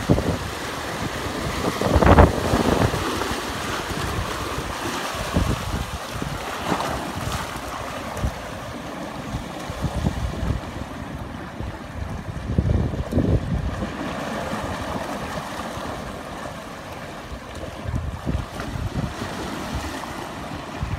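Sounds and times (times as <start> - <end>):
surf breaking on rocks: 0.0 - 11.0
wind buffeting microphone: 0.0 - 20.9.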